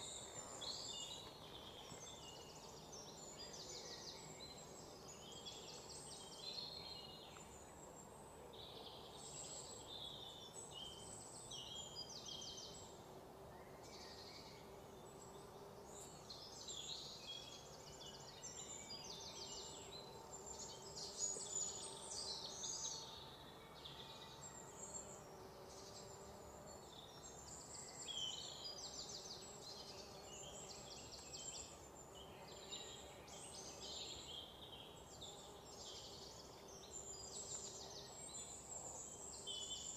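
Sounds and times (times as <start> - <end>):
insects: 0.0 - 39.9.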